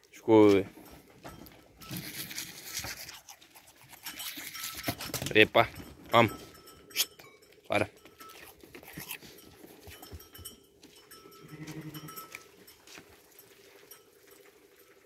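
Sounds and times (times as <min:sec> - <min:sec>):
sheep bleating: 0:11.4 - 0:12.3.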